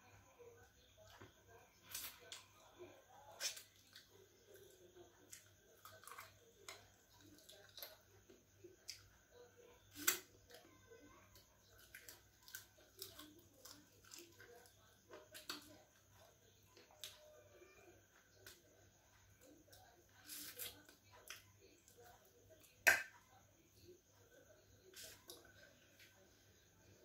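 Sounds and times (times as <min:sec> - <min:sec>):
person chewing food: 0:03.4 - 0:08.0, 0:11.7 - 0:16.0.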